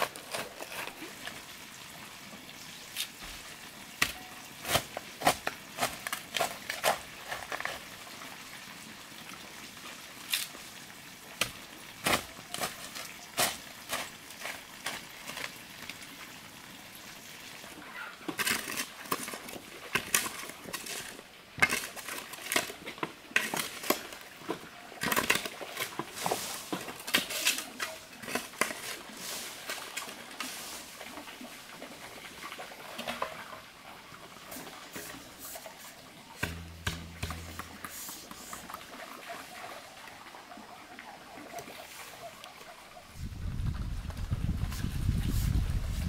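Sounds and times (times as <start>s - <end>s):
shovel chopping and scraping soil: 0.0s - 1.2s, 4.0s - 7.8s, 11.4s - 15.5s, 18.3s - 22.8s, 25.0s - 29.0s, 35.0s - 38.8s.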